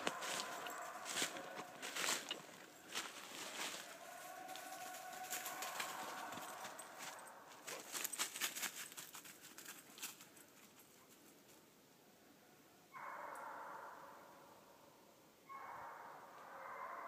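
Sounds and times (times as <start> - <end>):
distant hounds baying: 0.0 - 7.8, 12.9 - 14.5, 15.5 - 17.0
dry leaves crackling: 0.0 - 10.3.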